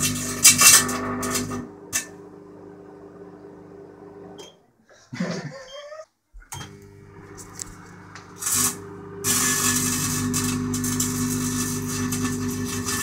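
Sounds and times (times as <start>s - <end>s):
electrical arcing crackling buzz: 0.0s - 2.1s, 7.2s - 13.0s
microwave oven humming: 0.0s - 4.6s, 6.5s - 13.0s.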